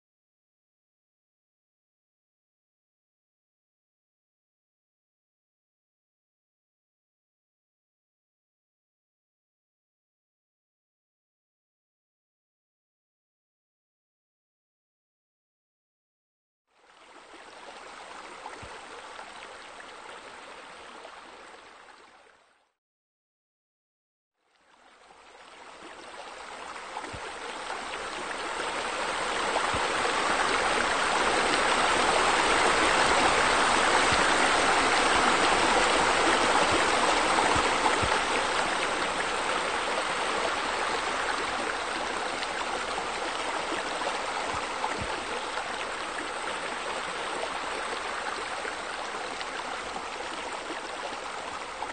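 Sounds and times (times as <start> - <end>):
running water rushing: 16.9 - 22.1, 24.6 - 51.9.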